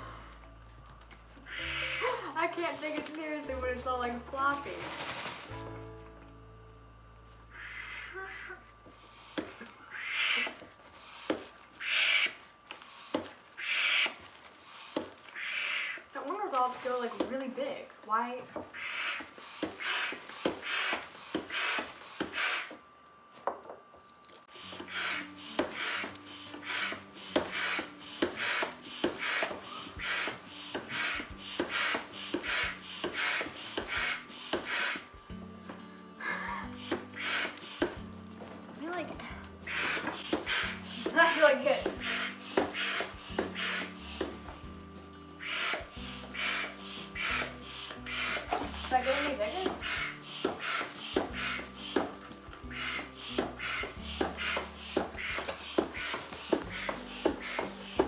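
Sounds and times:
hand pump puffing air: 8.8 - 9.7, 10.4 - 15.2, 18.8 - 22.8, 24.5 - 38.1, 39.4 - 44.7, 45.4 - 58.0.

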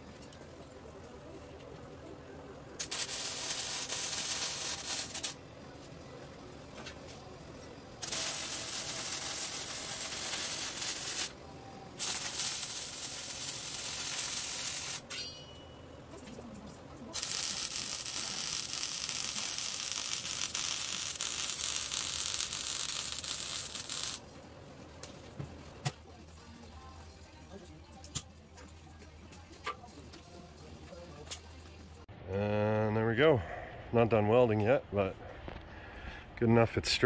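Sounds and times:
welding crackling sizzle: 2.8 - 5.9, 6.7 - 15.2, 17.0 - 24.4.

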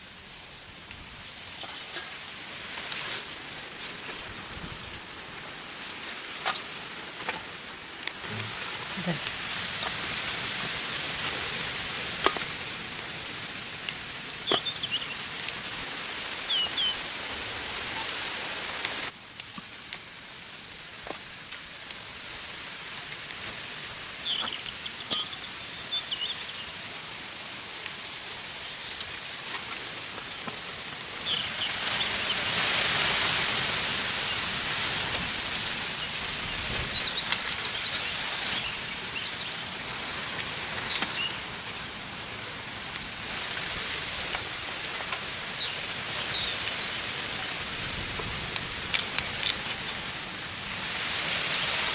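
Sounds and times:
outdoor hiss: 0.0 - 51.9
small birds chirping: 13.4 - 17.1, 23.1 - 26.8, 30.3 - 32.5, 35.8 - 41.9, 44.9 - 47.6.

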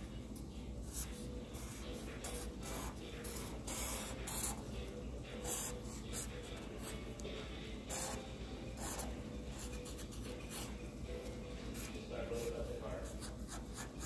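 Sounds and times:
marker scratching on paper: 0.8 - 4.7, 5.3 - 7.1, 7.8 - 10.8, 11.7 - 14.0.

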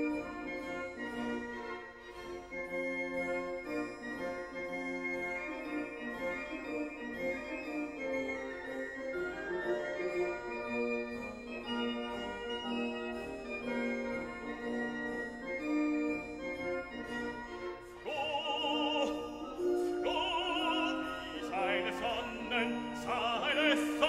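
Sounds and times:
operatic singing with vibrato: 17.8 - 24.0.

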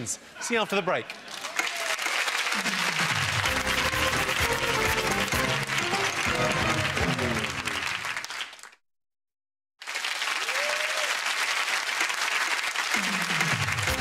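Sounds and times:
studio audience applauding: 1.1 - 8.8, 9.8 - 14.0
theme music: 3.1 - 8.2, 13.0 - 14.0.

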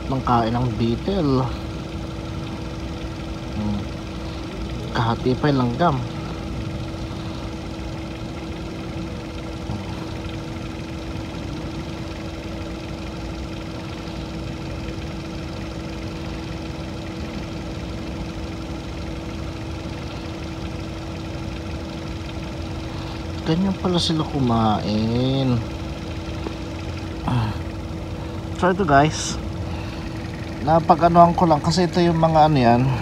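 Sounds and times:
steady machine drone: 0.0 - 33.0.

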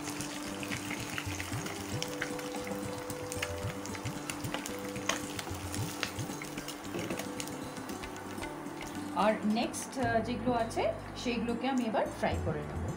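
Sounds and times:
fish sizzling in hot oil: 0.0 - 10.0.

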